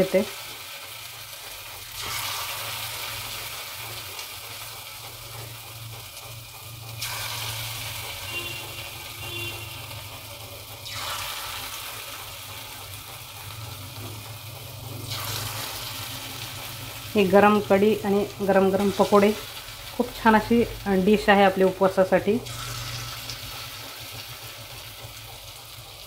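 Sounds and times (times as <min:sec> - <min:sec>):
batter sizzling in hot oil: 0:00.0 - 0:26.0.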